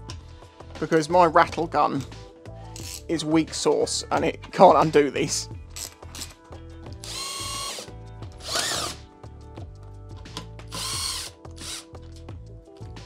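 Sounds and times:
cordless power driver whirring: 7.0s - 9.0s, 10.7s - 11.9s.

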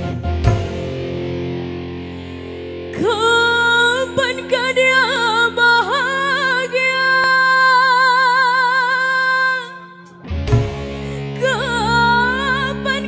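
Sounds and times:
woman singing: 2.9s - 10.2s, 11.2s - 13.0s.

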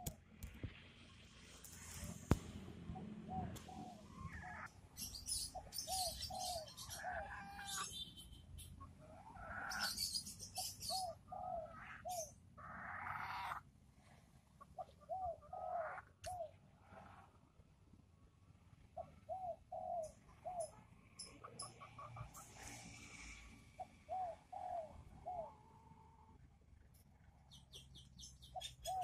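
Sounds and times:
chickens clucking: 5.3s - 13.6s, 14.6s - 17.1s, 19.9s - 22.7s.

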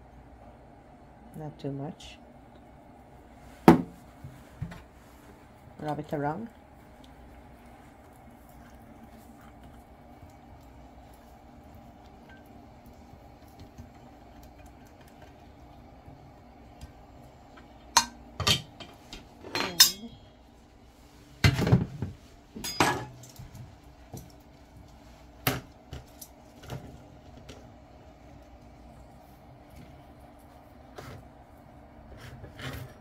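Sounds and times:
kitchen utensils clinking: 18.0s - 20.2s, 22.6s - 23.4s.

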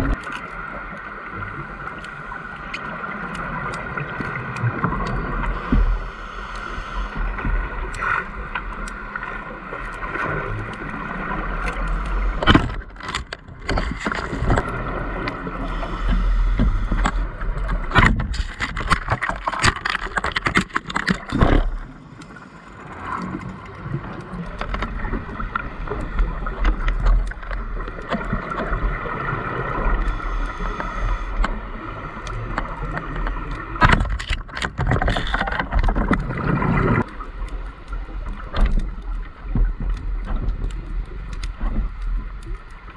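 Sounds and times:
steady underwater hum: 0.0s - 42.9s
regulator breathing and bubbles: 1.2s - 42.9s.

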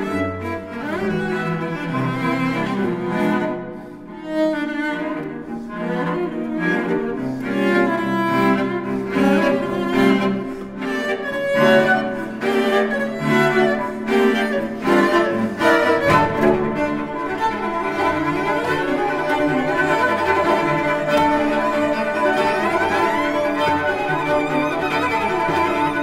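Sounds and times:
bowed string music with cello: 0.0s - 26.0s.

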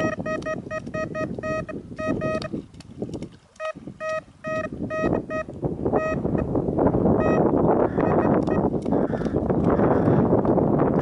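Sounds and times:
bite alarm beeping: 0.0s - 2.5s, 3.6s - 6.4s, 7.2s - 8.7s
wind noise: 0.0s - 11.0s.

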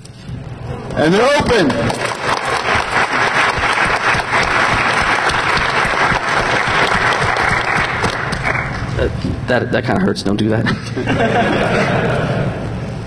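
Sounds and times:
large audience applauding: 1.5s - 9.0s.

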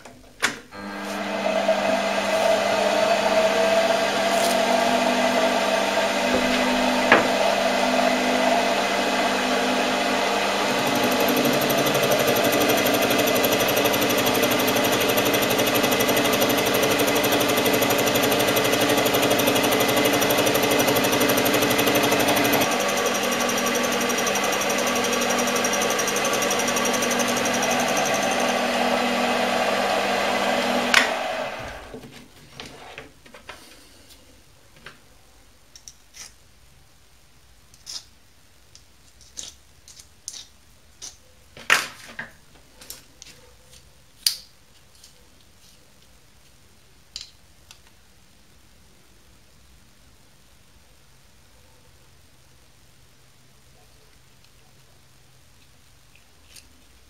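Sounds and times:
cutter milling aluminium: 0.8s - 31.9s
lathe humming: 0.8s - 32.0s.

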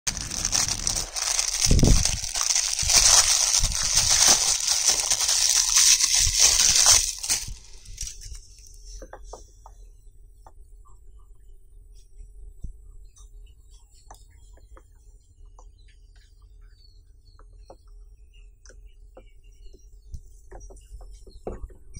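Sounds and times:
plastic wrapping crinkling: 0.1s - 8.8s.

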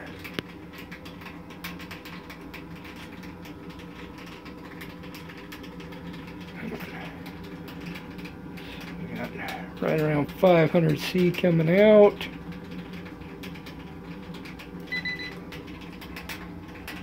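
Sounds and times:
fan humming: 0.0s - 17.0s.

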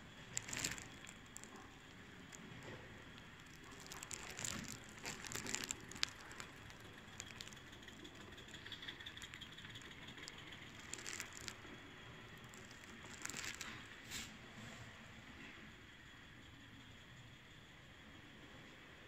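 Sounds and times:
model locomotive wheels clicking: 0.0s - 14.0s.

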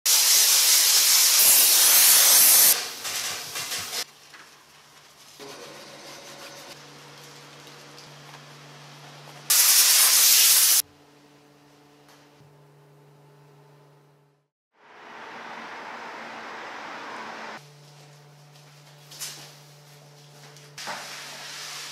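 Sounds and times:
steam cleaner hissing: 0.1s - 4.0s, 9.5s - 10.8s, 20.8s - 21.9s.

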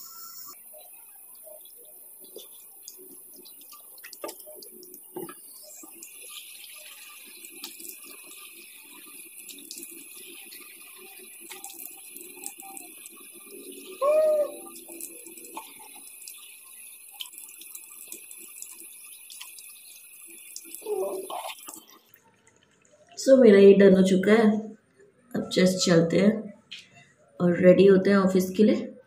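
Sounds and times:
tap water running into sink: 2.2s - 22.9s.

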